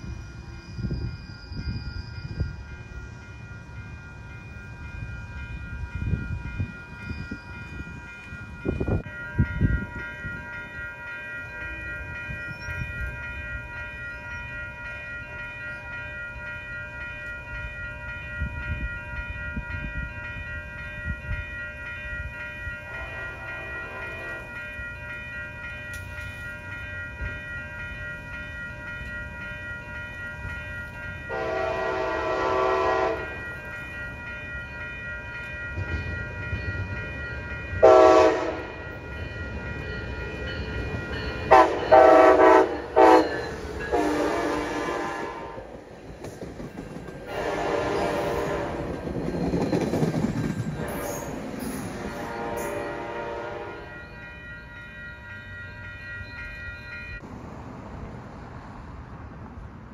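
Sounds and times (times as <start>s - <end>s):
continuous high ringing: 0.0s - 57.3s
distant train horn blasts: 22.9s - 24.6s, 31.3s - 33.5s, 37.8s - 38.9s, 41.5s - 45.7s, 47.3s - 49.0s, 52.0s - 54.0s.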